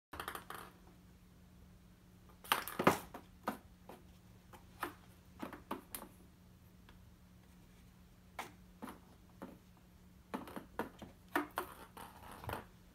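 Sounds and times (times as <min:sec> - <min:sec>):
cat scraping and tapping doormat: 0:10.3 - 0:12.8.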